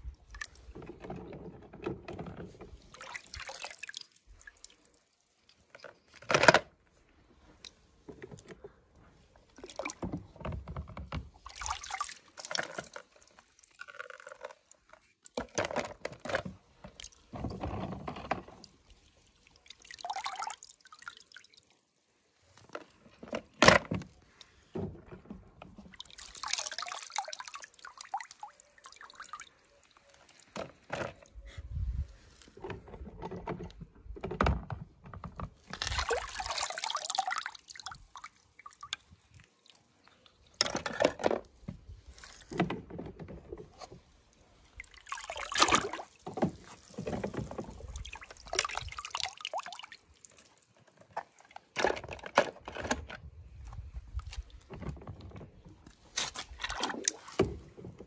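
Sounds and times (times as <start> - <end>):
water sloshing and splashing: 0.0 - 58.0.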